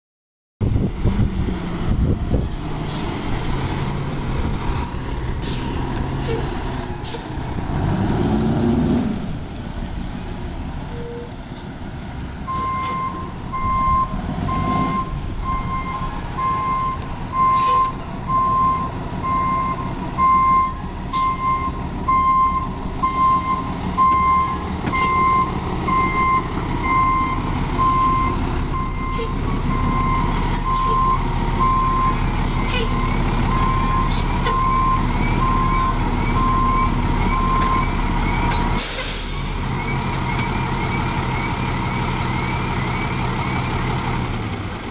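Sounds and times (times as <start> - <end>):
diesel engine running: 0.6 - 44.9
reversing alarm beeping: 10.4 - 38.6.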